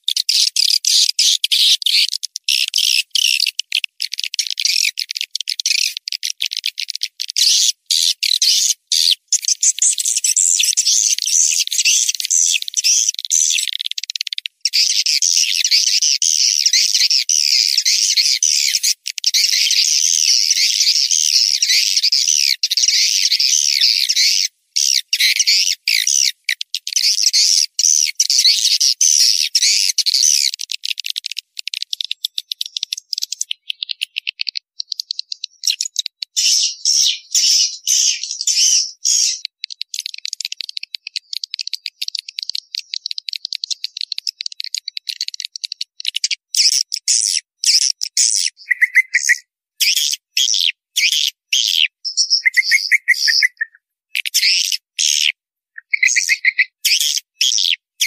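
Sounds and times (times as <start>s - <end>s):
swiftlets twittering chirps: 46.6s - 50.2s, 51.6s - 55.2s, 55.8s - 57.2s.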